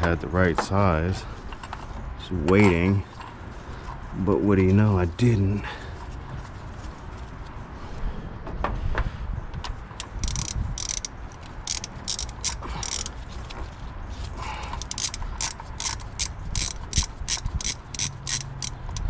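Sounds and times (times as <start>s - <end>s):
ratchet wrench clicking: 9.6s - 19.0s.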